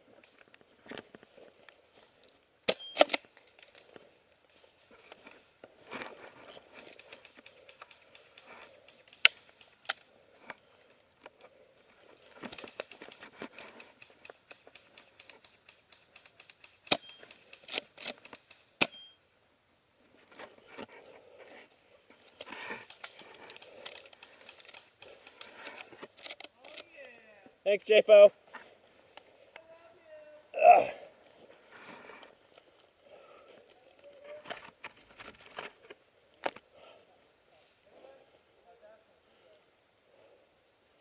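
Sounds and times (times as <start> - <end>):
sharp clicks and knocks: 12.3 - 19.0.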